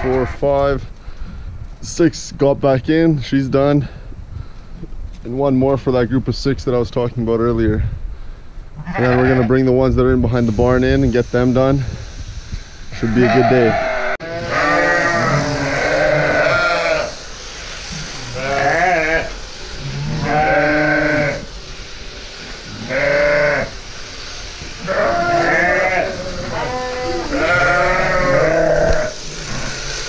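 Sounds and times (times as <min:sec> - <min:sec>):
sheep bleating: 0:08.8 - 0:09.5, 0:13.2 - 0:17.1, 0:18.3 - 0:21.5, 0:22.8 - 0:23.8, 0:24.8 - 0:29.1.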